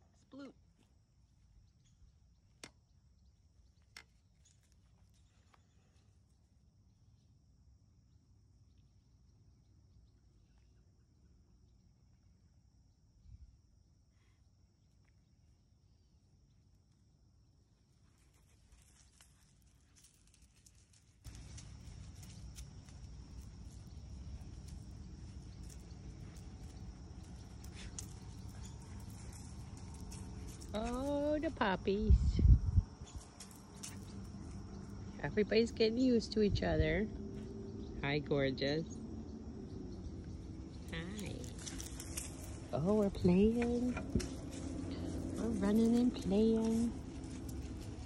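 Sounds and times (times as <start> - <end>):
high insect trill: 0.3 - 48.0
dogs scuffling on sand: 18.1 - 31.3, 41.2 - 48.0
high-pitched insect drone: 38.8 - 48.0.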